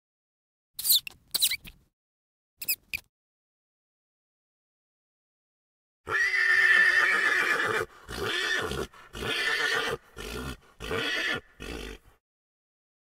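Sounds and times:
pony neighing: 0:06.1 - 0:12.2.

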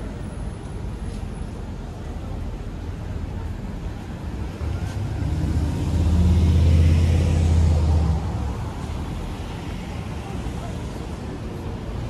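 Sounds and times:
vehicle driving past: 0:04.9 - 0:08.6.

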